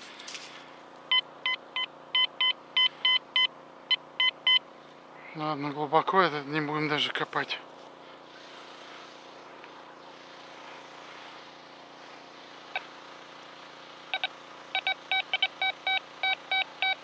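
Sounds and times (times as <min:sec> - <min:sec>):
metal detector beeping: 0:01.1 - 0:04.6, 0:14.1 - 0:17.0.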